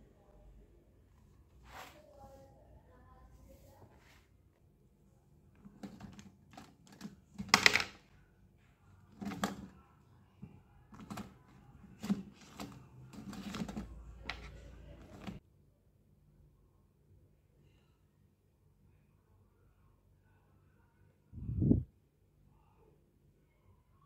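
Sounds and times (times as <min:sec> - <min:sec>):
small objects clicking and knocking: 0:05.7 - 0:08.1.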